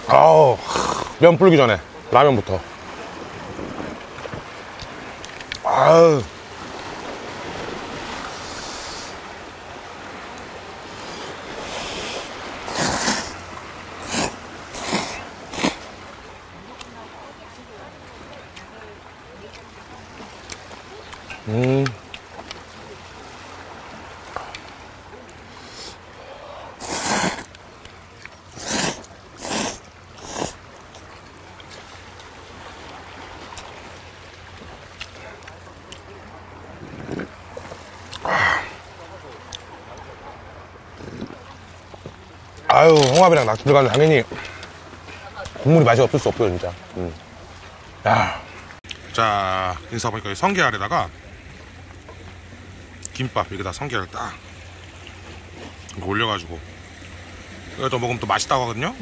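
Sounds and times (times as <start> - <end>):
sea waves: 0.0 - 59.0
wind: 0.0 - 59.0
noodles slurped loudly: 11.6 - 13.4, 14.0 - 15.9, 26.6 - 27.5, 28.5 - 30.6
quiet chewing: 14.0 - 16.0, 20.4 - 22.7, 24.3 - 33.8, 34.6 - 36.2, 36.8 - 40.1, 40.9 - 45.6.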